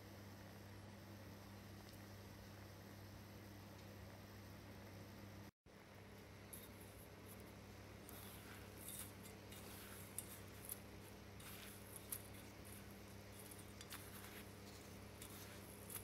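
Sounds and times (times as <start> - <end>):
scratchy rustling of crumbs: 6.5 - 16.0.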